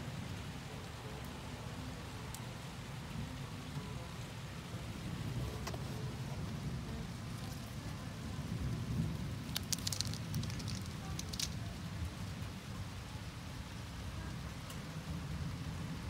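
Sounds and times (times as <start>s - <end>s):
rain falling: 0.0s - 16.0s
low thunder rumble: 4.8s - 12.6s.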